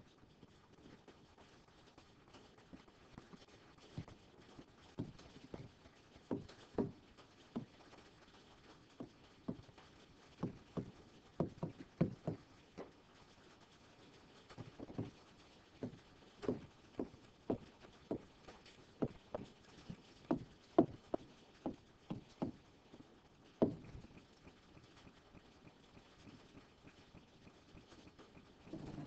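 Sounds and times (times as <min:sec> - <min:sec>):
stylus tapping on touchscreen: 0:10.4 - 0:12.4, 0:23.6 - 0:25.2.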